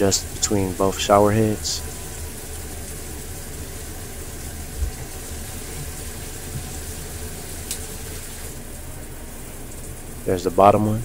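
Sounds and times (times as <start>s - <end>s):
shower water spraying onto tile: 0.0s - 8.7s.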